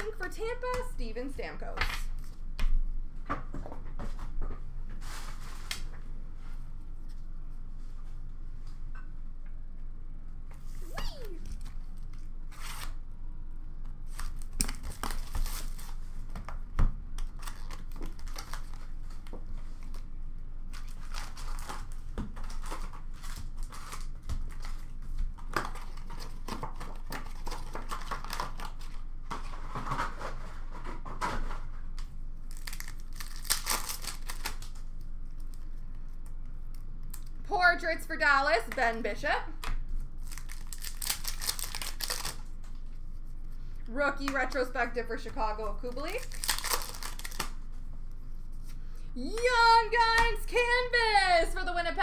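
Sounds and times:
card pack wrappers tearing: 17.2 - 19.2, 32.5 - 35.5, 40.2 - 42.5, 45.8 - 47.6.

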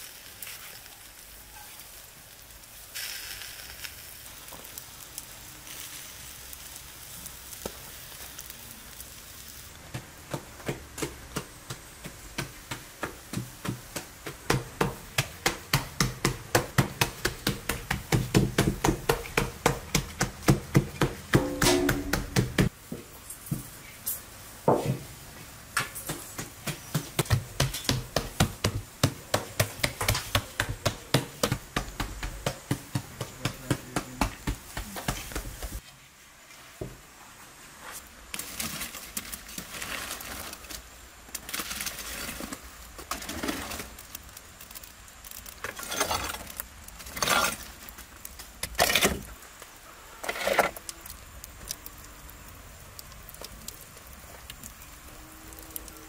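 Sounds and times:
metal trays tapping and clinking: 17.2 - 22.7
louder metal tray noises: 21.3 - 22.7.

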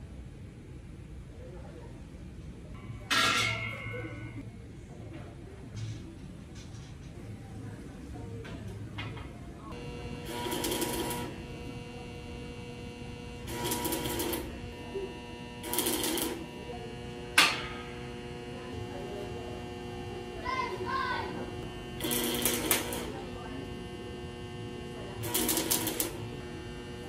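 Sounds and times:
steady electrical hum: 0.0 - 27.0
arc welder crackling: 9.7 - 27.0.

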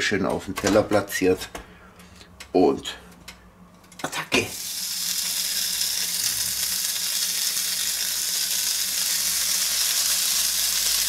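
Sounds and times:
sausages sizzling on contact grill: 4.3 - 11.0.

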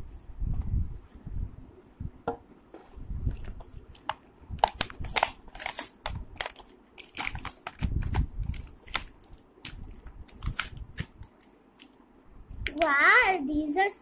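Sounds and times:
plastic packaging crackling: 3.3 - 11.9.

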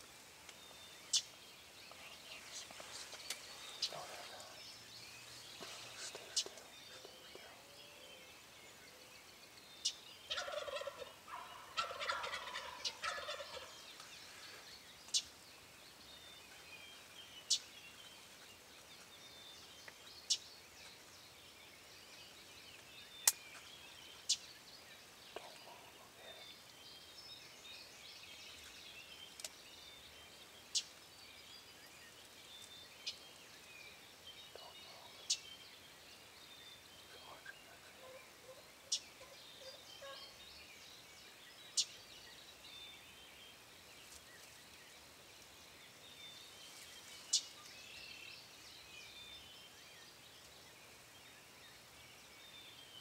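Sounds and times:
birds chirping: 0.0 - 53.0
turkey gobbling: 10.3 - 13.7.

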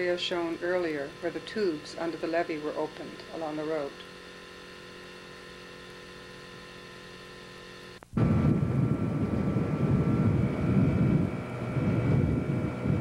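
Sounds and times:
low hum: 0.0 - 13.0
wind buffeting microphone: 8.2 - 13.0.

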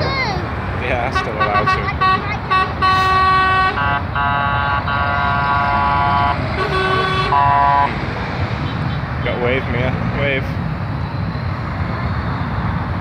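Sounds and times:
low traffic rumble: 0.0 - 13.0
vehicle horns blasting: 0.9 - 7.9.

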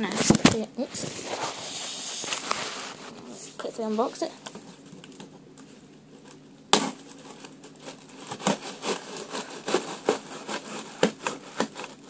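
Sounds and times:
cardboard box being opened: 6.8 - 12.0.

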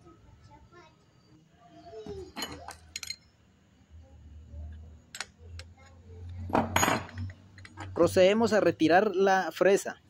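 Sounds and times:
metal wrenches clinking: 2.3 - 3.3, 6.7 - 8.0.

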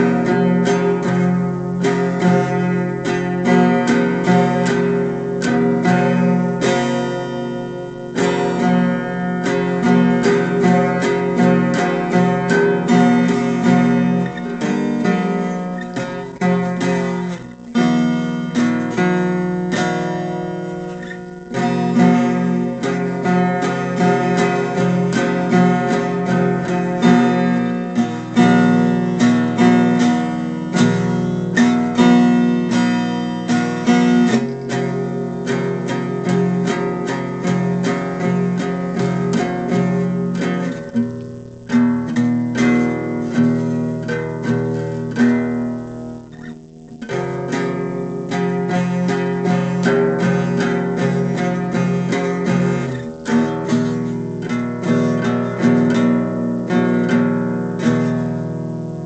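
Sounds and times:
acoustic guitar strumming: 0.0 - 59.0.

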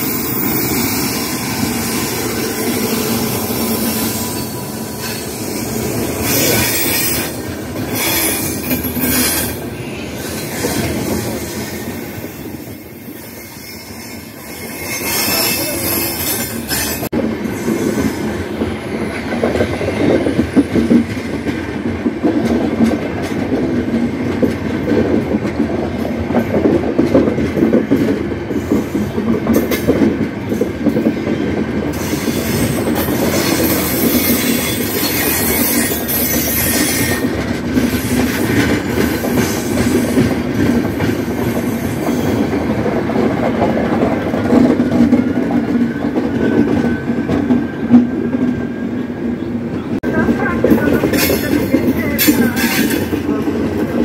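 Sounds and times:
train coaches rumbling past: 0.0 - 54.0
wheels clattering over rail joints: 50.2 - 54.0.

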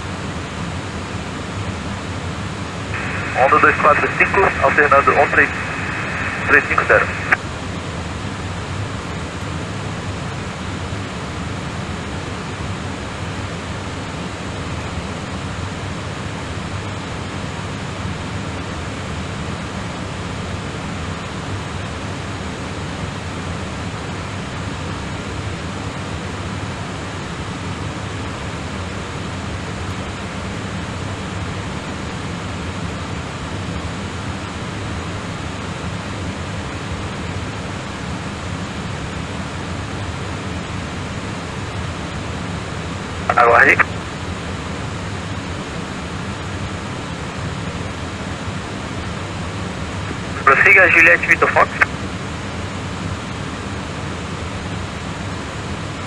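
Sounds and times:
low hum: 3.0 - 7.4
radio hiss: 3.0 - 7.4, 43.2 - 43.9, 50.0 - 51.9.

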